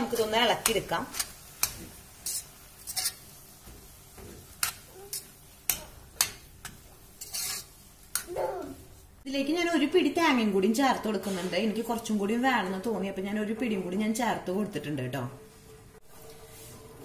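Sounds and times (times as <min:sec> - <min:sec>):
metal spoon scraping a pan: 0:00.0 - 0:08.3.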